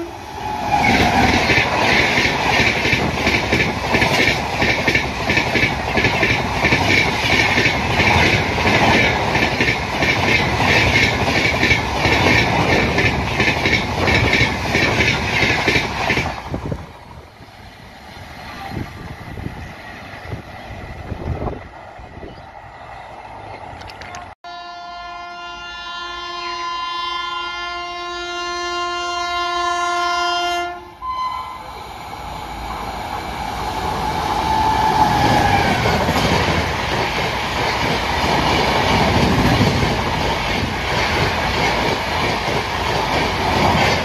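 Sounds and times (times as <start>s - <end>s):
train passing at high speed: 0.0s - 44.0s
train wheels clattering: 0.7s - 16.5s, 34.2s - 44.0s.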